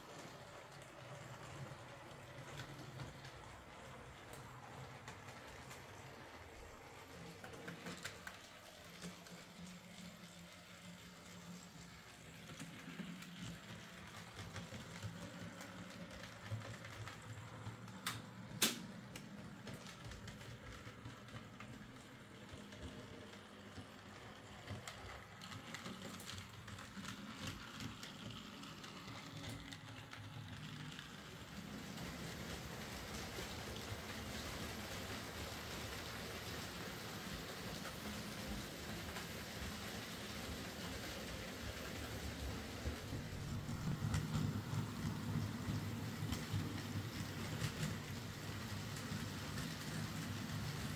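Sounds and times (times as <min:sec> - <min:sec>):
model train motor hum: 0:21.1 - 0:50.9.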